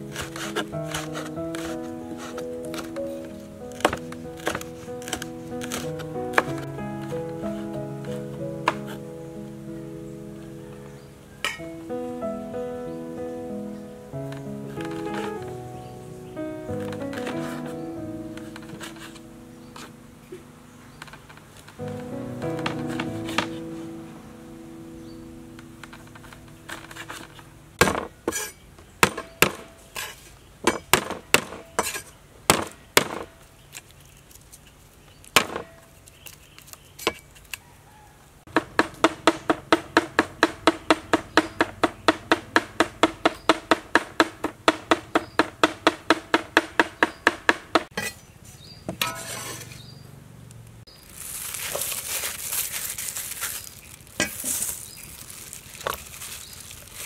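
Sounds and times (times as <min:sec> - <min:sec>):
cleaver chopping on wooden board: 0:03.7 - 0:06.5, 0:38.5 - 0:48.1
hissing rustle: 0:51.0 - 0:57.0.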